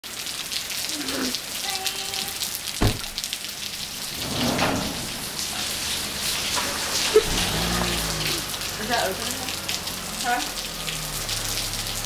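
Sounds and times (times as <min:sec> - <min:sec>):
heavy rain falling: 0:00.0 - 0:12.0
single thump: 0:02.8 - 0:03.3.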